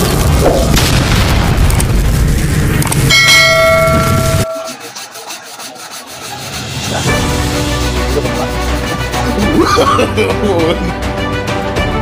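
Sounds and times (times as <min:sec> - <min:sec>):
rumbling boom: 0:00.0 - 0:03.1
chiming bell: 0:03.1 - 0:04.9.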